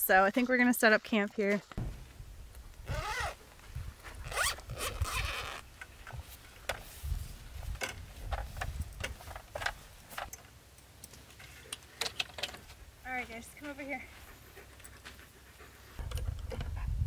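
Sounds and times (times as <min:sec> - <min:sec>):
zipper being pulled open: 0:02.8 - 0:03.4, 0:04.2 - 0:05.6.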